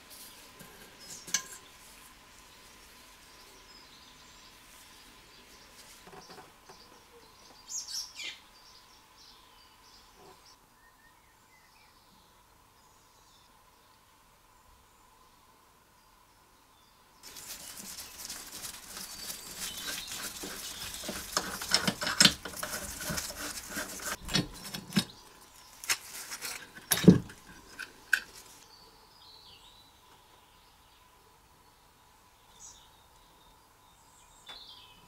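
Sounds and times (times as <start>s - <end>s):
metallic clicking and scraping: 0.6s - 1.7s, 17.2s - 25.2s, 25.8s - 28.5s.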